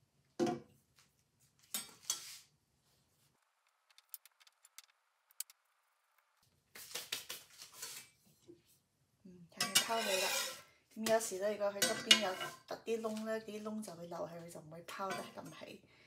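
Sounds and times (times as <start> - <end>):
metal spatula clattering on counter: 9.6 - 10.6, 11.8 - 12.6.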